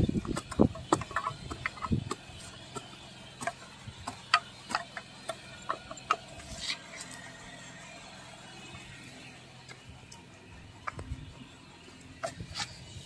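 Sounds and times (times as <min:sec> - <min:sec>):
hoe chopping dry soil: 0:00.0 - 0:07.2.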